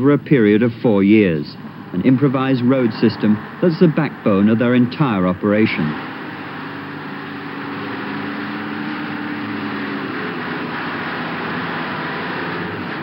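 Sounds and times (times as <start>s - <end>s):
lorry engine hum: 0.0s - 13.0s
steady road noise: 0.0s - 13.0s.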